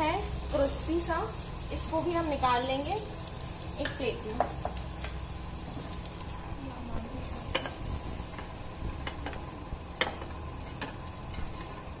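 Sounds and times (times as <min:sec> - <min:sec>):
cheese frying in oil: 0:00.0 - 0:12.0.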